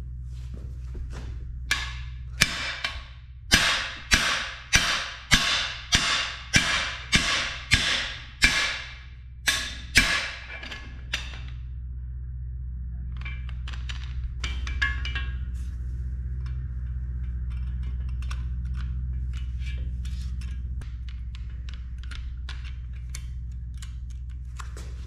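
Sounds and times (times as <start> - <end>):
steady low hum: 0.0 - 25.0
hammer striking metal bar: 1.7 - 11.5.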